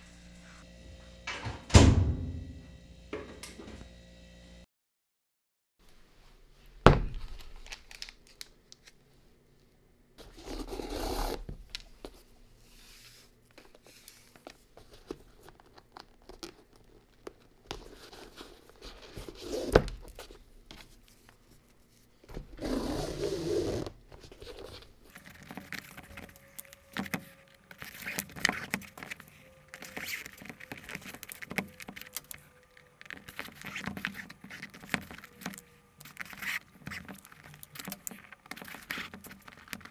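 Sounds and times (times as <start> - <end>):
scraping and rustling: 10.2 - 39.9.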